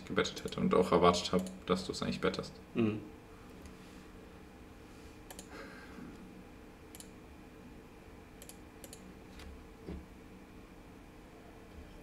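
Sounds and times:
faint steady hum: 0.0 - 12.0
computer mouse clicks: 5.3 - 5.5, 6.9 - 7.2, 8.4 - 9.5.

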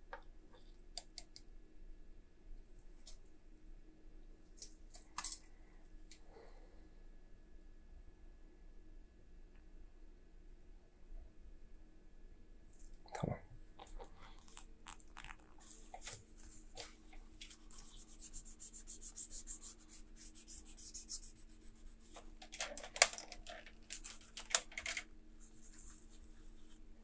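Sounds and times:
laptop keyboard keys clicking: 22.5 - 25.0.

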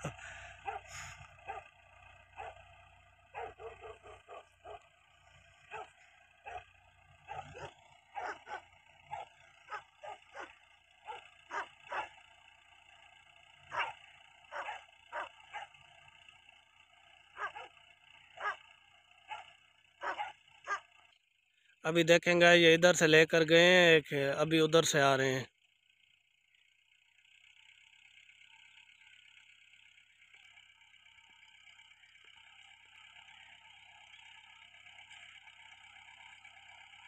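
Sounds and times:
dogs barking: 0.6 - 2.7, 3.3 - 4.9, 5.6 - 12.2, 13.7 - 15.8, 17.4 - 18.6, 19.2 - 21.0.

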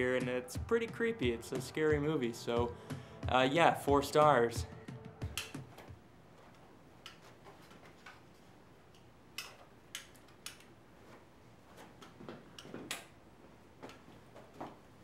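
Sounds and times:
footsteps on floor: 11.0 - 15.0.

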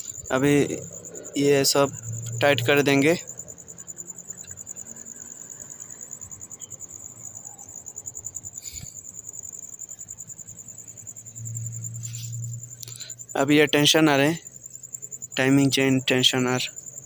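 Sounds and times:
low hum: 0.0 - 3.6, 11.0 - 13.3
crickets chirping: 0.0 - 17.0.

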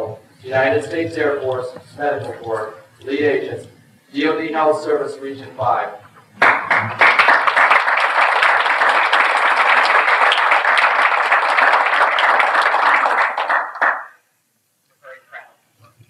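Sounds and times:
audience applauding: 6.3 - 14.2.

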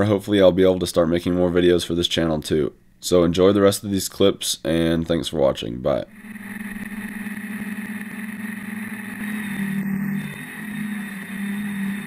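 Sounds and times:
quadcopter propellers buzzing: 6.2 - 12.0.

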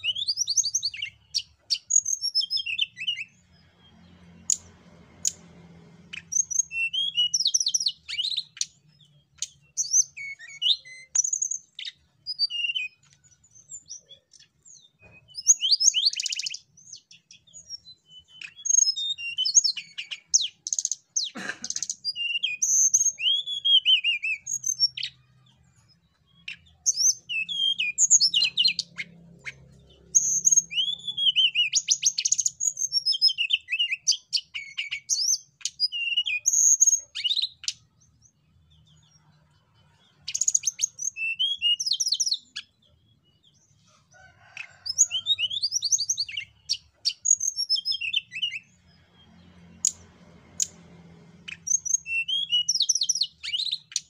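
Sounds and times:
bird singing trills and whistles: 0.0 - 5.4, 6.1 - 39.4, 40.0 - 43.7, 44.5 - 48.9, 51.4 - 54.0.

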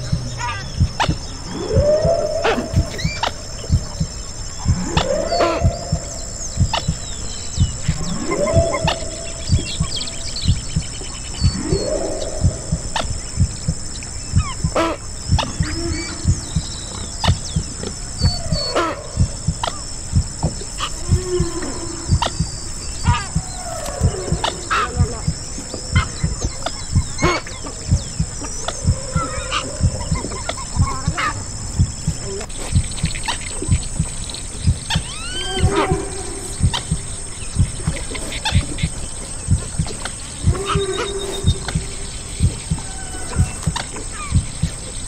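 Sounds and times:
heartbeat: 0.0 - 45.0
whale song moans and whistles: 0.0 - 45.0.

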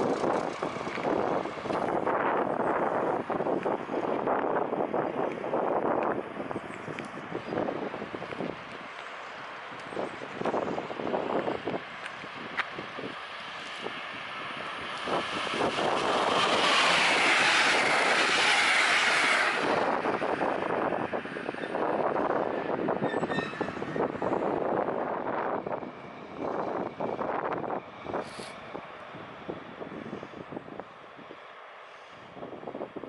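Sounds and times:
wheels rattling over track: 0.0 - 4.3, 14.4 - 28.9
diesel locomotive running slowly: 0.0 - 33.0
high squeal: 23.0 - 24.0.

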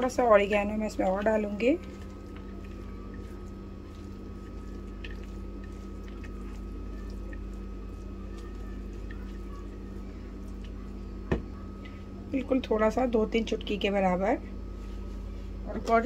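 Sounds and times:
steady background hum: 0.0 - 16.0
spatula scraping and squishing filling: 0.5 - 10.9.

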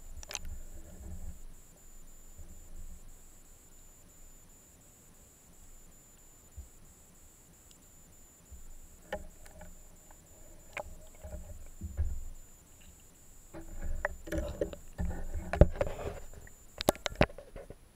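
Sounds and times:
underwater knocks and clicks: 0.2 - 1.4, 8.5 - 17.8.

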